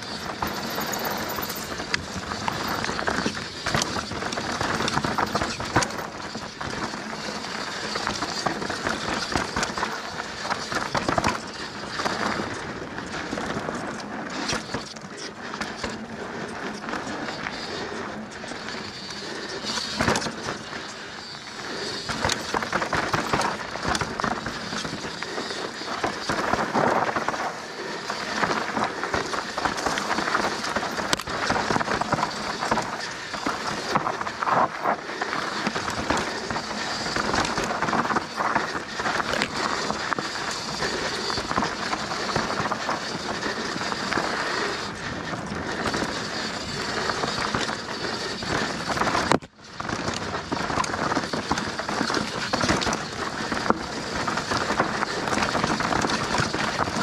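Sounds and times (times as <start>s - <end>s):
bike clattering: 0.0s - 57.0s
bike tyres rattling over stones: 0.0s - 57.0s.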